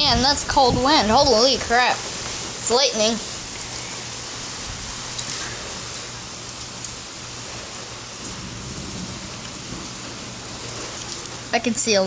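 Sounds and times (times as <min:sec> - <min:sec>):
heavy rain on concrete: 0:00.0 - 0:12.0.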